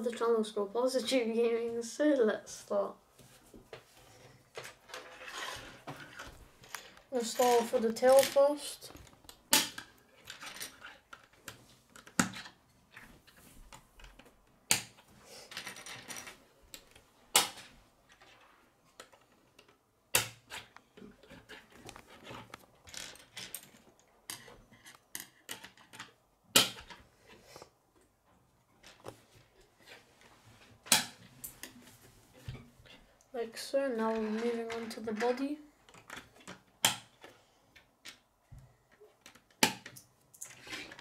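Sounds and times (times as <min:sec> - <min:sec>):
plastic pieces rattling and scraping: 0:04.5 - 0:13.4, 0:15.5 - 0:19.7, 0:20.5 - 0:27.0, 0:32.8 - 0:37.3, 0:39.0 - 0:41.0
plastic pieces clicking together: 0:19.0 - 0:27.0.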